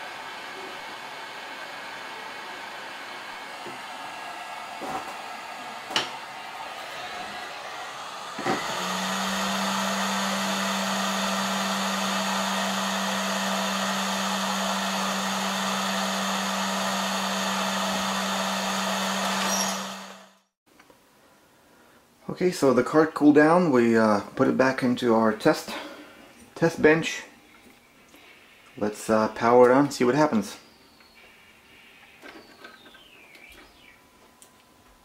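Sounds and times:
hot air blower hissing: 0:00.0 - 0:20.5.

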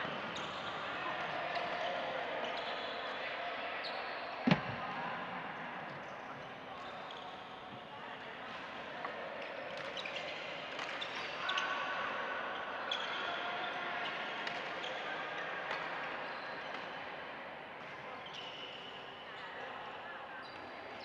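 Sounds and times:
shoes squeaking on court floor: 0:00.0 - 0:03.0, 0:06.0 - 0:07.8
hubbub of voices: 0:00.0 - 0:21.0.

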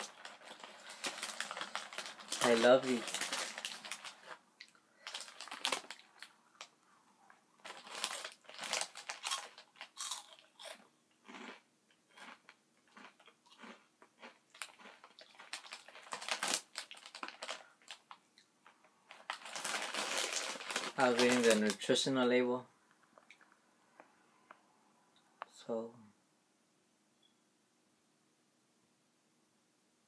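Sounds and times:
snack crunching while chewed: 0:07.7 - 0:18.5.

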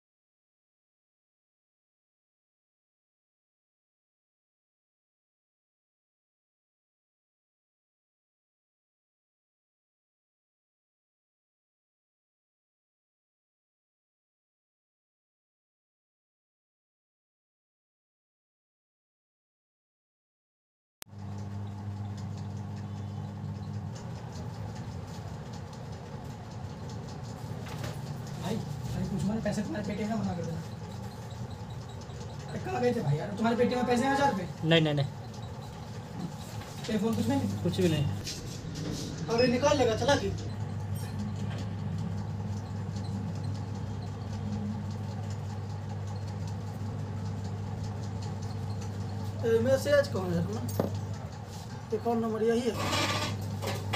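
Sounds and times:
low electrical hum: 0:21.1 - 0:53.9
low rumble: 0:38.2 - 0:43.4.

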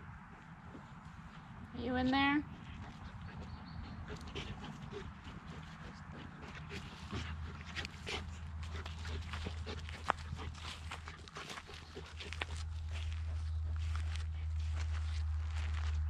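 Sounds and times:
scuffling and rustling in grass: 0:06.8 - 0:16.0.

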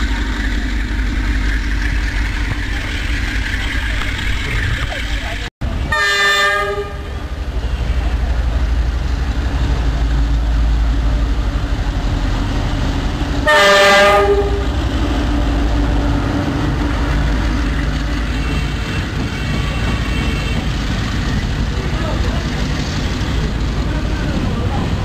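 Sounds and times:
diesel engine rumbling: 0:00.0 - 0:25.0
freight train passing: 0:00.0 - 0:25.0
locomotive horn blasts: 0:05.9 - 0:08.1, 0:13.4 - 0:14.9, 0:17.8 - 0:20.9.

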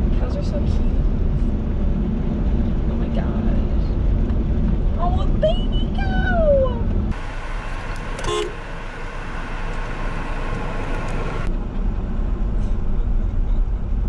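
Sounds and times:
car driving on gravel: 0:07.0 - 0:12.5
car horn toot: 0:08.2 - 0:08.6.

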